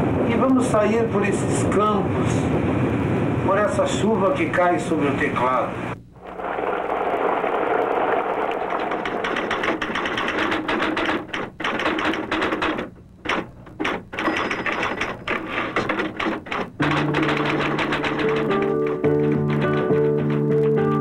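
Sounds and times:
typewriter keys clacking: 8.7s - 21.0s.

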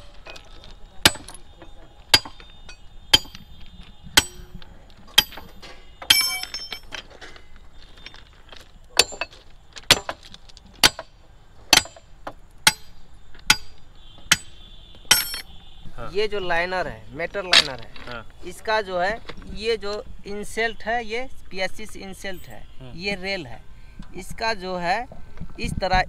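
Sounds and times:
steel tools striking rail fittings: 2.1s - 3.5s, 4.2s - 7.2s, 12.6s - 15.5s.

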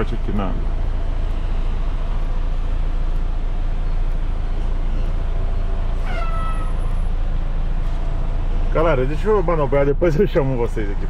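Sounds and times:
diesel truck engine rumbling: 0.0s - 11.0s
short high squeal: 6.0s - 7.0s.

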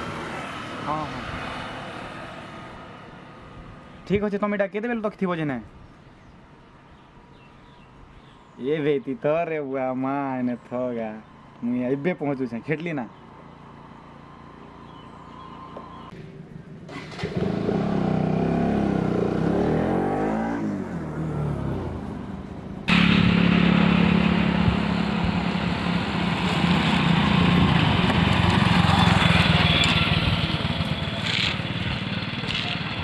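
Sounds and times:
motorcycle engine revving: 14.3s - 33.0s
steady engine drone: 21.0s - 33.0s.

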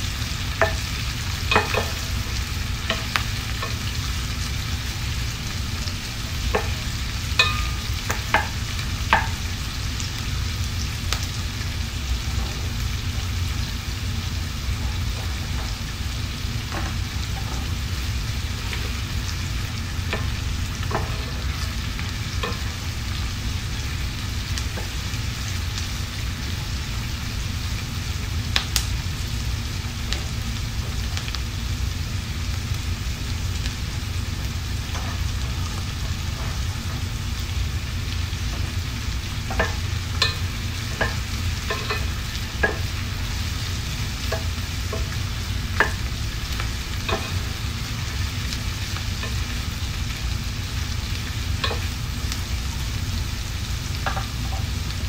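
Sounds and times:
steady low hum: 0.0s - 55.0s
vegetables sizzling in hot oil: 0.0s - 55.0s
wooden spoon knocking on pan: 0.6s - 3.8s, 6.4s - 9.4s, 20.1s - 21.6s, 39.5s - 43.0s, 44.2s - 45.2s, 47.1s - 47.5s, 54.0s - 54.6s.

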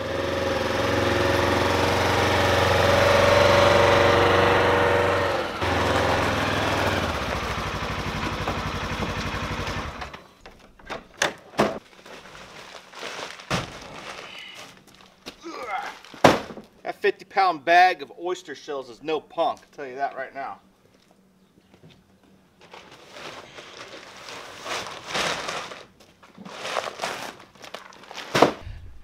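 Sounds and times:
vehicle engine running: 0.0s - 10.1s.

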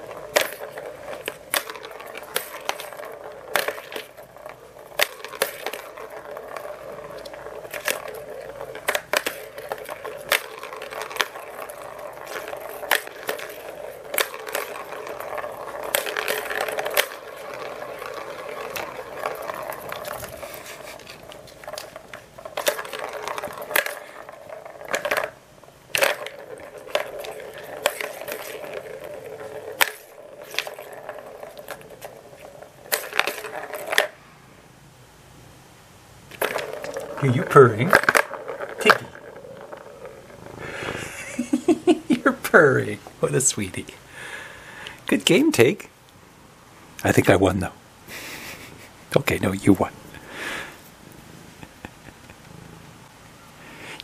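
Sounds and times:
ball clicking against track: 0.0s - 34.2s, 36.3s - 41.6s
plastic ball rolling on track: 0.0s - 34.2s, 36.3s - 46.0s, 46.9s - 54.0s.

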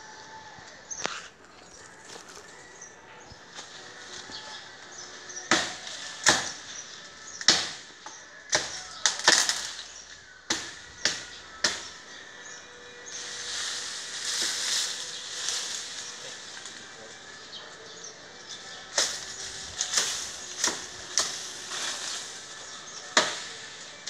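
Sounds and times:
leaves and branches rustling: 0.7s - 12.1s, 12.7s - 24.0s
blade chopping tree branch: 5.5s - 6.6s, 7.3s - 12.0s, 18.9s - 22.5s, 23.1s - 23.6s.

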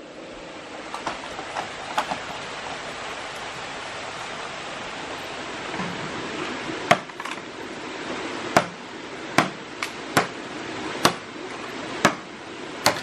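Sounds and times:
stream rushing: 0.0s - 12.9s
blade chopping bamboo: 6.9s - 7.4s, 8.5s - 8.8s, 9.4s - 10.4s, 11.0s - 11.3s, 12.0s - 13.0s.

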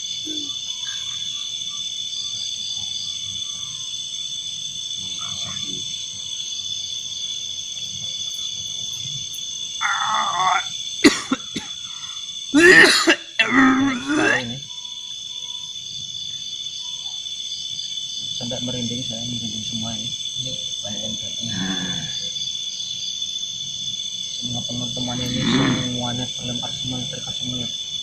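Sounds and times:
night insects chirring: 0.0s - 28.0s
man making harsh throaty outbursts: 9.8s - 11.4s, 12.6s - 14.6s, 25.2s - 26.0s.

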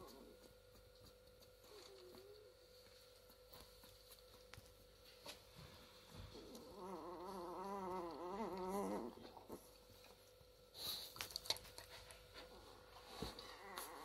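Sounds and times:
dog whimpering: 6.4s - 9.6s, 13.4s - 14.0s.

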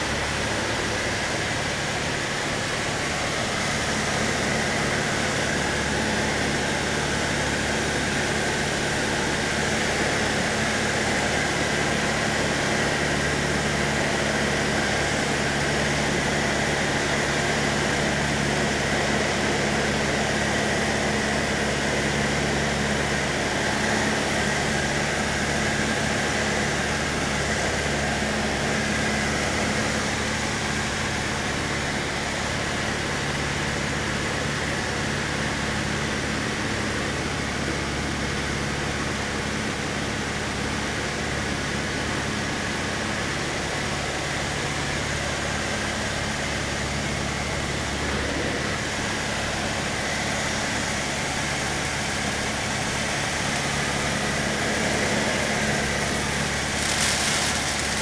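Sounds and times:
light aircraft engine droning: 0.0s - 58.0s
air rushing in cabin: 46.2s - 58.0s.

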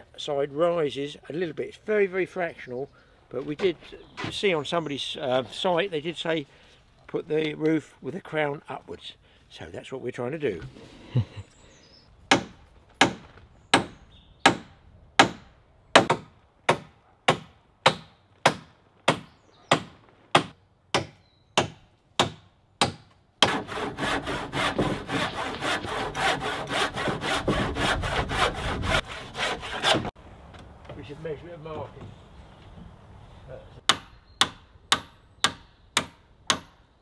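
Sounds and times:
handsaw cutting timber: 22.8s - 30.2s.

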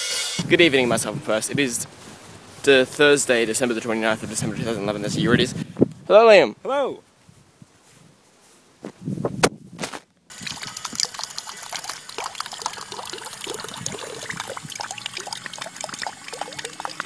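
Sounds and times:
water spattering into metal basin: 10.3s - 17.0s.

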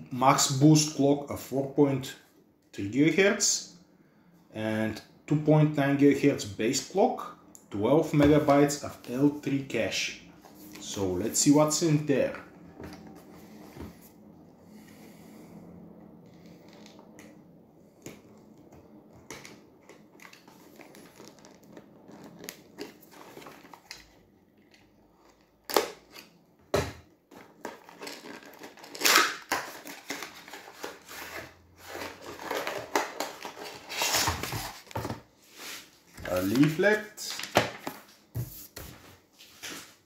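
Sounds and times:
cardboard rustling and crinkling: 19.4s - 26.2s, 27.3s - 40.0s.

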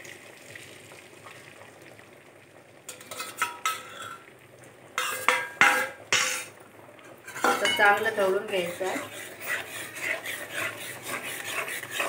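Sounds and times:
eggs sizzling in hot oil: 0.0s - 12.0s
bowl and spoon knocking pan: 5.0s - 6.5s, 7.3s - 8.0s.

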